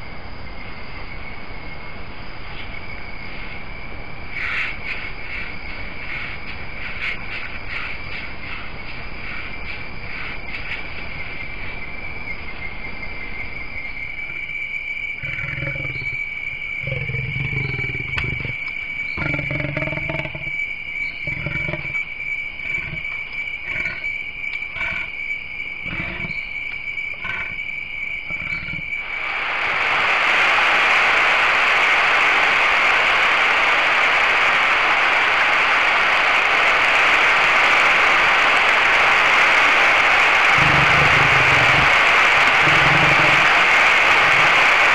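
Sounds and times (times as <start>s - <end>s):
high insect tone: 0.0s - 44.9s
leopard rasping calls: 15.2s - 16.2s, 22.6s - 24.1s, 24.7s - 25.1s, 25.8s - 26.4s, 27.1s - 27.6s, 28.3s - 28.9s, 40.5s - 44.6s
loud even hiss: 28.4s - 44.9s.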